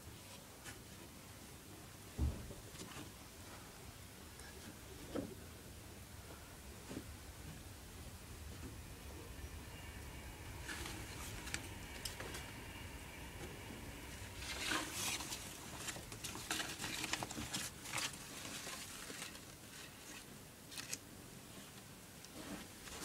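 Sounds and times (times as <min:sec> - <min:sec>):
paper and cloth rustling: 0:14.4 - 0:23.0.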